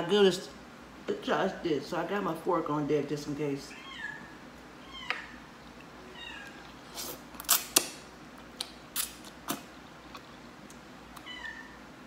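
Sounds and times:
cat meowing: 3.7s - 5.4s, 6.0s - 6.7s, 11.2s - 11.8s.

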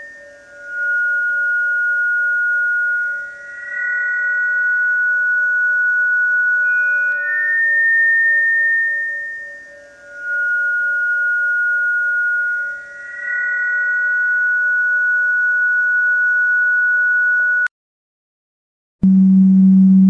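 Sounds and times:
high pure tone shifting pitch: 0.0s - 17.7s, 19.0s - 20.0s
faint low steady tone: 19.0s - 20.0s.

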